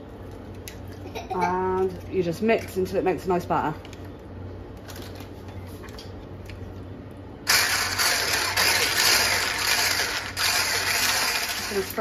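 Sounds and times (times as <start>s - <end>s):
low steady hum: 0.0s - 12.0s
electric whisk whirring: 7.5s - 12.0s.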